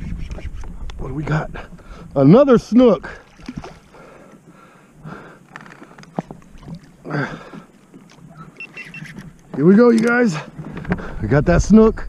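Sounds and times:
water splashing: 0:02.9 - 0:04.6, 0:05.2 - 0:10.8
knocks and clicks on kayak: 0:07.5 - 0:11.0.

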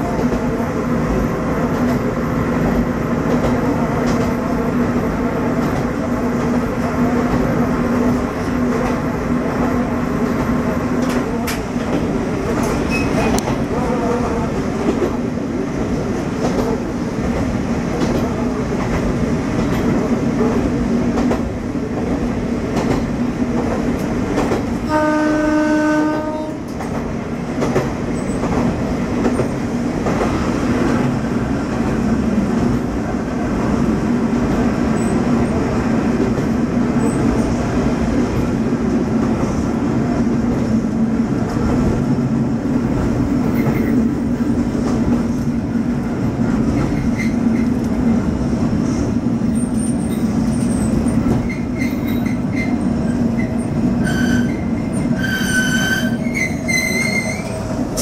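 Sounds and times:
diesel railcar engine droning: 0:00.0 - 0:58.0
train horn: 0:24.8 - 0:26.7.

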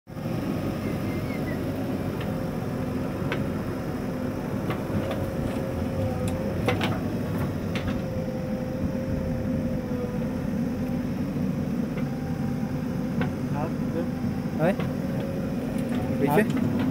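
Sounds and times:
diesel engines running: 0:00.1 - 0:16.9
wavering drone: 0:00.1 - 0:16.9.

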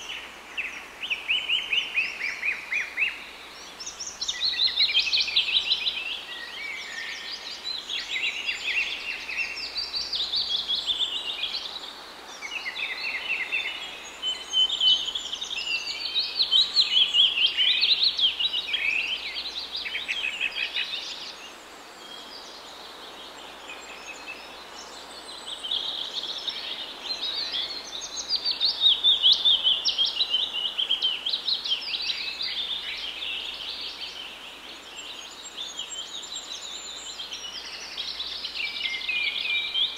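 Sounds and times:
faint background hiss: 0:00.0 - 0:39.9
small birds chirping: 0:00.0 - 0:39.9.

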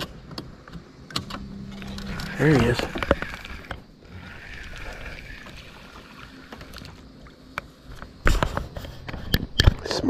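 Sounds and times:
fish splashing: 0:01.4 - 0:08.7.

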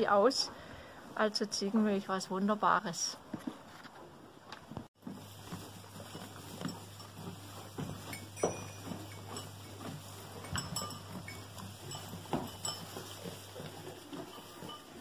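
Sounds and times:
hay rustling: 0:05.0 - 0:15.0
knocks on wooden hay rack: 0:12.0 - 0:13.2.

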